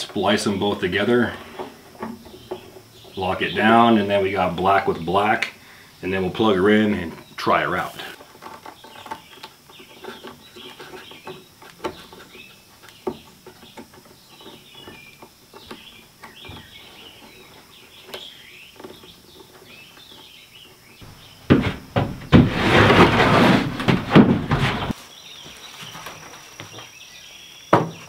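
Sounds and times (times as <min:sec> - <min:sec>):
small birds chirping: 0:00.0 - 0:21.5, 0:25.0 - 0:28.0
knock: 0:21.5 - 0:23.1
sliding door scraping along track: 0:21.6 - 0:25.0.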